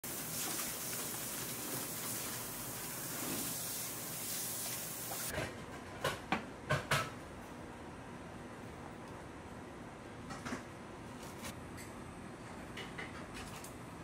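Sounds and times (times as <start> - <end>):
batter being poured: 0.0 - 5.3
kitchen background hiss: 0.0 - 5.4.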